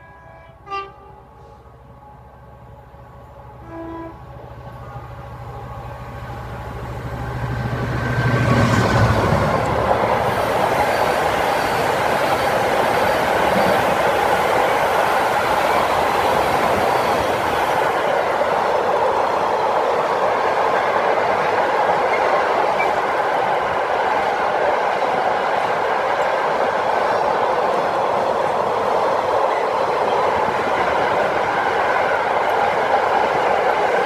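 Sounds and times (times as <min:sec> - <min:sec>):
train horn: 0:00.0 - 0:02.2, 0:03.3 - 0:06.0
locomotive drone: 0:00.0 - 0:23.7
train wagons rumbling and clattering: 0:04.2 - 0:34.0.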